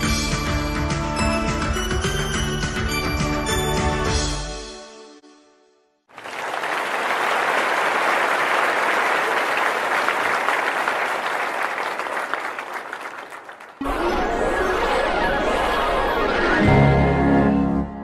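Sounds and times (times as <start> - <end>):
crowd applauding: 6.1 - 16.6.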